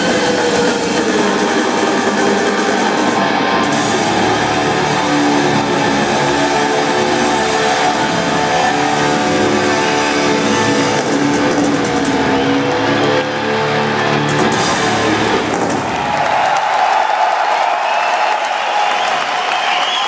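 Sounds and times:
electric guitar long notes: 0:00.0 - 0:15.8
live rock band playing: 0:00.0 - 0:15.9.

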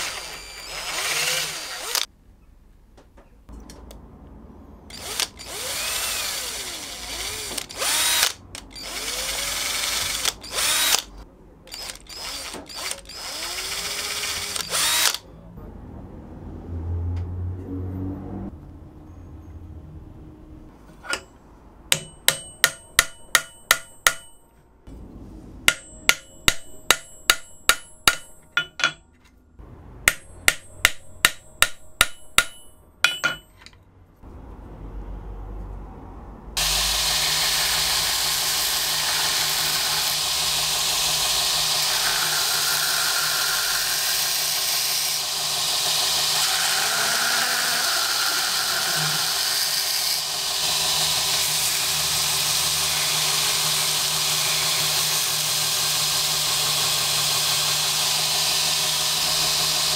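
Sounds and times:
belt grinder running: 0:00.0 - 0:02.1, 0:04.9 - 0:11.1, 0:11.8 - 0:15.2, 0:36.6 - 0:59.9
hammer tapping metal tool: 0:21.0 - 0:24.7, 0:25.7 - 0:29.3, 0:30.1 - 0:33.8.

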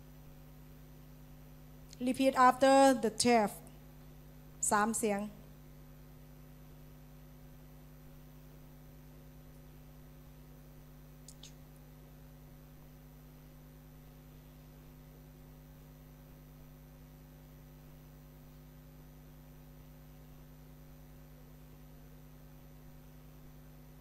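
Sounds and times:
faint electrical hum: 0:00.0 - 0:24.0
faint click: 0:11.2 - 0:11.8.

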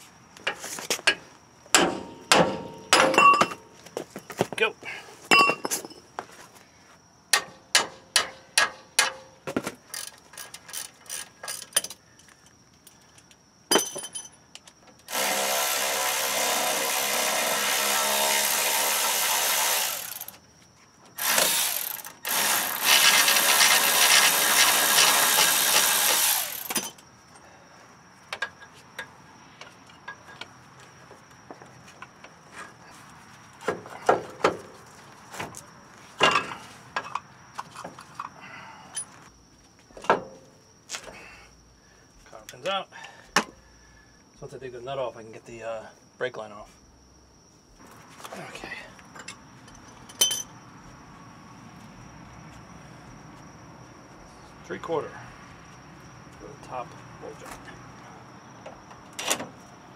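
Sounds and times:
ratchet wrench clicking: 0:09.9 - 0:11.8
power wrench spinning bolts: 0:15.1 - 0:20.4, 0:21.2 - 0:26.9.

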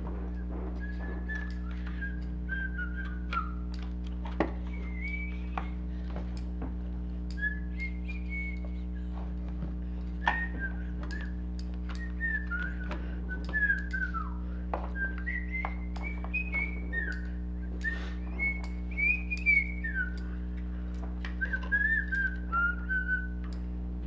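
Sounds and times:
steady low hum: 0:00.0 - 0:24.0
person whistling a tune: 0:00.2 - 0:03.8, 0:04.6 - 0:05.8, 0:07.3 - 0:09.2, 0:10.2 - 0:20.4, 0:21.4 - 0:23.4.

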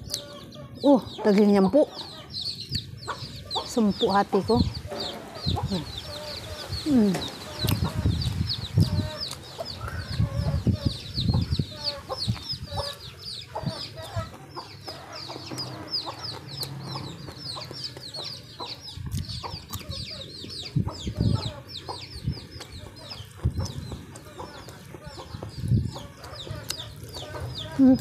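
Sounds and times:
birds chirping: 0:00.0 - 0:28.0
muffled chewing: 0:13.9 - 0:20.6, 0:21.8 - 0:28.0.

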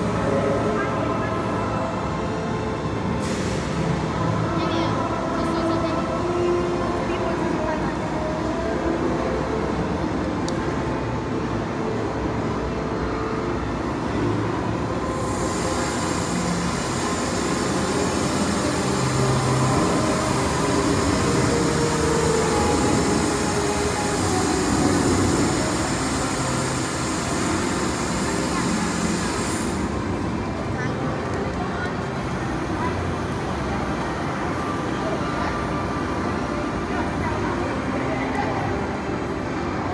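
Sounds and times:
railway station din: 0:00.0 - 0:39.9
train sounds: 0:00.0 - 0:39.9
bright hiss: 0:15.0 - 0:30.3.

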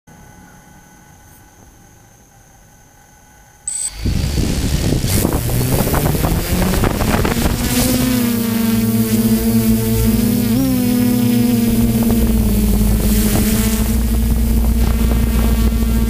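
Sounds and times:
drone rotors humming: 0:03.4 - 0:16.0
short high beep: 0:03.7 - 0:04.0
propeller wash rushing: 0:03.8 - 0:16.0.

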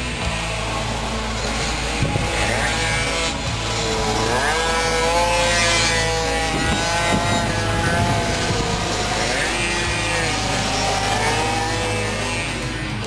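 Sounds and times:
minibike engine revving: 0:00.0 - 0:13.0.

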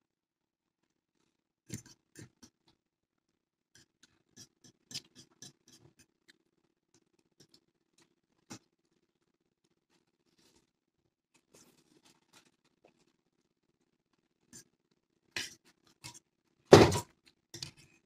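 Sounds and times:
slurping and chewing: 0:03.8 - 0:08.8.

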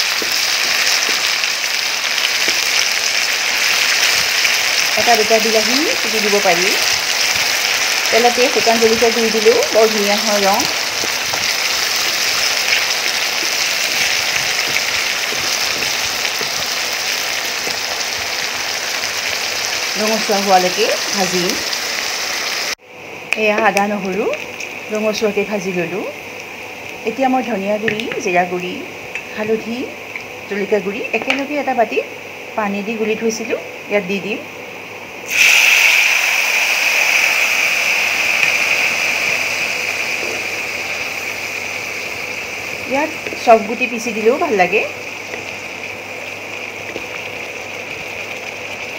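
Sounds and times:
onions sizzling in hot oil: 0:00.0 - 0:48.9.

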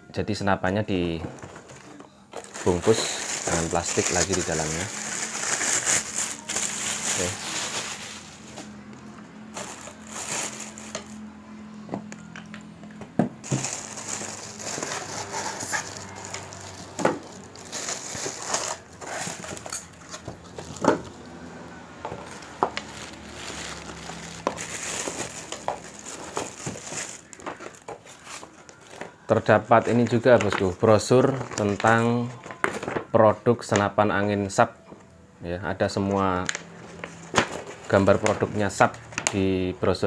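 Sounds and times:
plastic wrapping crinkling: 0:01.4 - 0:08.8, 0:09.4 - 0:11.2, 0:13.4 - 0:21.2, 0:22.0 - 0:32.9.

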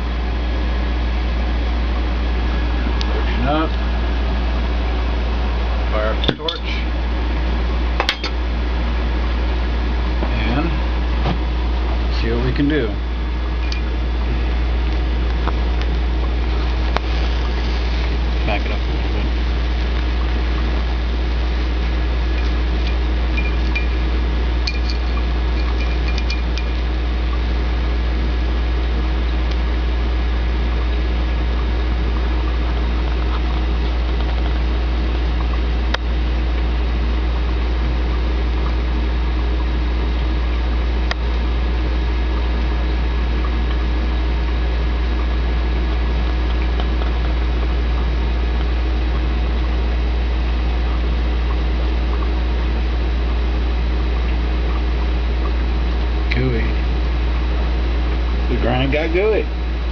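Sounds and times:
low hum: 0:00.0 - 0:59.9
torch flame hissing: 0:13.3 - 0:27.0.

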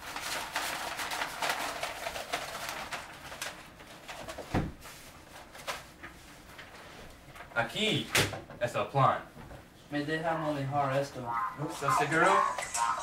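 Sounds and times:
paper crinkling and rustling: 0:00.0 - 0:07.6.

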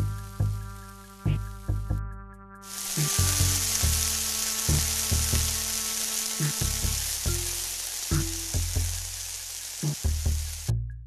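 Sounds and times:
spices sizzling in hot oil: 0:00.0 - 0:01.4, 0:02.6 - 0:10.7.

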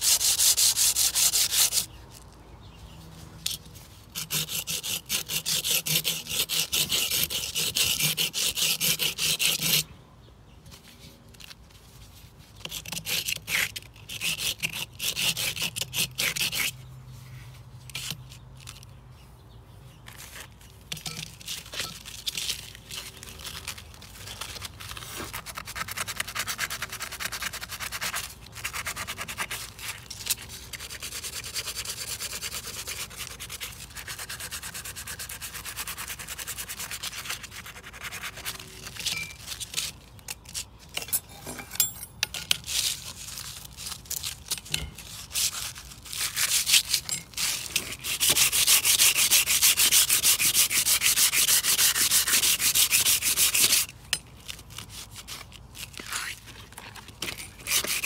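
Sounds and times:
sandpaper rubbing on metal: 0:00.0 - 0:01.9, 0:03.9 - 0:09.8, 0:12.6 - 0:16.8, 0:24.4 - 0:40.0, 0:44.9 - 0:53.9, 0:57.6 - 0:58.0.

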